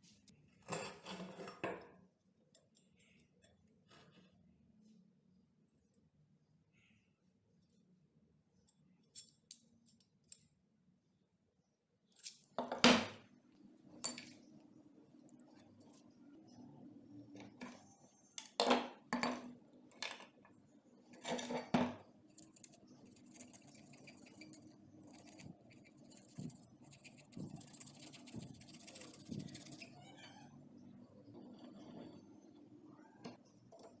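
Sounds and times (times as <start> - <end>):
marker scratching on steel: 22.3 - 29.9.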